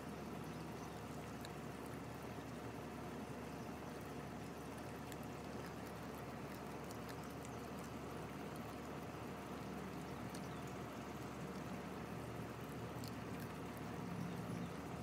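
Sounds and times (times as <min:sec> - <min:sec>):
puppy gnawing clicks: 0:01.3 - 0:01.6, 0:04.8 - 0:08.7, 0:10.2 - 0:11.8, 0:12.9 - 0:14.7.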